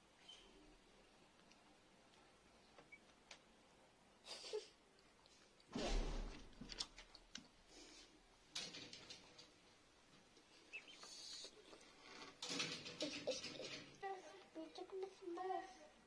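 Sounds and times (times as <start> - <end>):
chickens pecking and scuffling: 6.3 - 15.3
chick peeping: 10.7 - 11.5.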